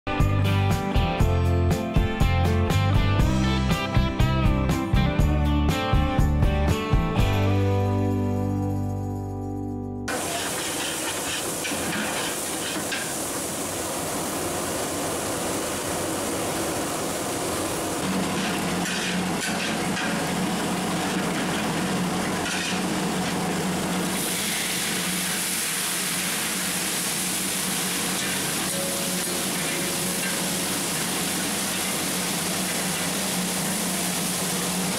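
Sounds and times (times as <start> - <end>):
garlic sizzling in hot oil: 10.1 - 21.0, 21.6 - 34.9.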